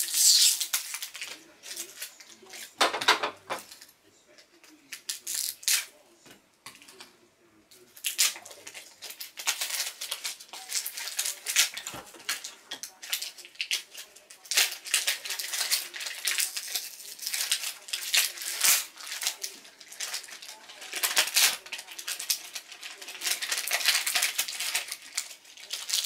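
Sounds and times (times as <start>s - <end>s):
plastic toys clicking and rattling: 8.0s - 26.0s.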